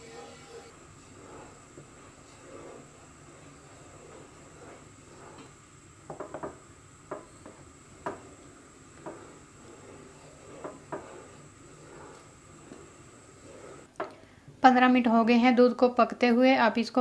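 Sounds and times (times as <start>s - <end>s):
wooden spoon stirring milk: 0.0s - 14.0s.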